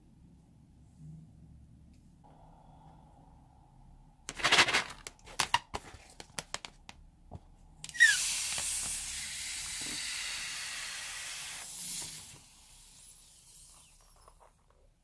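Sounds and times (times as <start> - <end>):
air hissing from balloon: 7.9 - 14.4.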